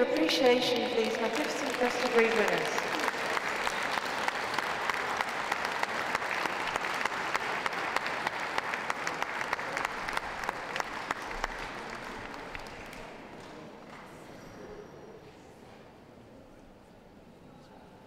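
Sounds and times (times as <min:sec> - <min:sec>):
audience applauding: 0:00.0 - 0:13.6.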